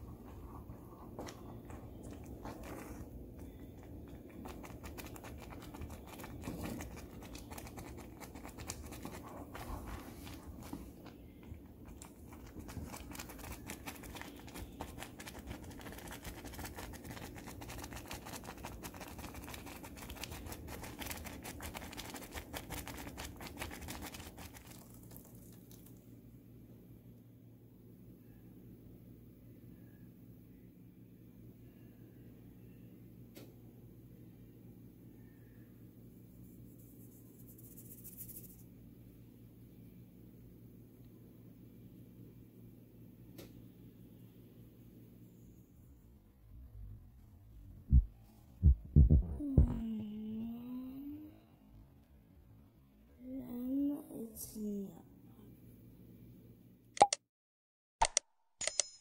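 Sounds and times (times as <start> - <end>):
wooden spoon stirring porridge: 0.0 - 25.9.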